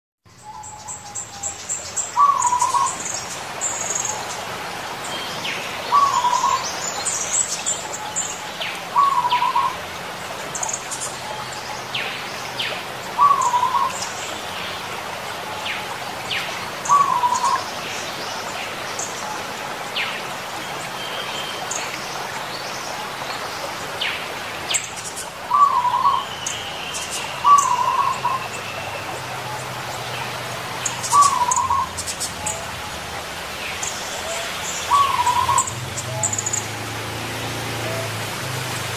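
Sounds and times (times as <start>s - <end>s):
small birds chirping: 0.3s - 9.8s, 10.4s - 14.9s, 15.5s - 38.2s
dove cooing: 2.2s - 2.9s, 5.9s - 6.6s, 8.9s - 9.8s, 13.2s - 14.0s, 16.9s - 17.6s, 25.5s - 26.2s, 27.4s - 28.5s, 31.0s - 33.0s, 34.2s - 36.9s.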